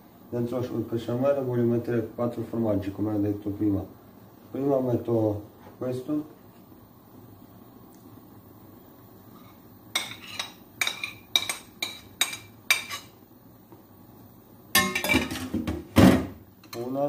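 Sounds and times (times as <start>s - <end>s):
metal spoon clinking on plate: 10.0s - 13.1s, 14.8s - 15.4s
utensils clattering: 14.8s - 15.8s.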